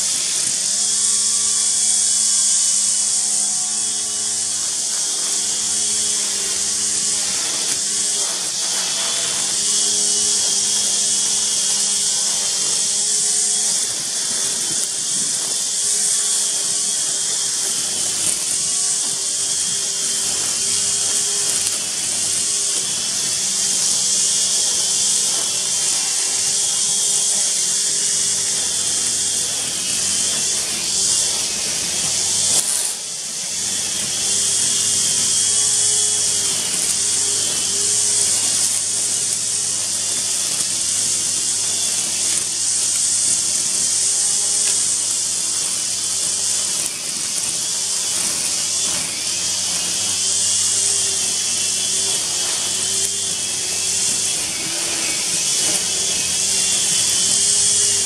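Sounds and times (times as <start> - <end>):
constant high hiss: 0.0 - 58.0
string trimmer cutting grass: 0.0 - 58.0.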